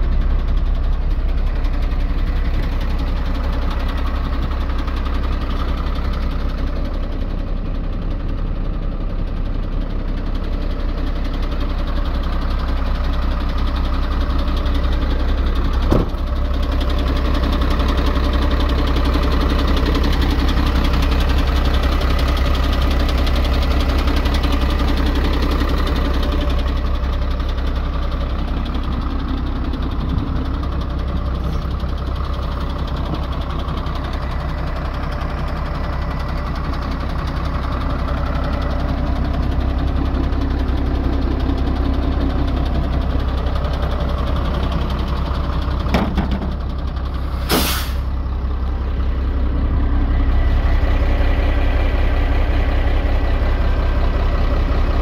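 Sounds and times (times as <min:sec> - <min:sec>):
diesel truck engine idling: 0:00.0 - 0:55.0
brief knock: 0:15.9 - 0:16.1, 0:45.9 - 0:46.6.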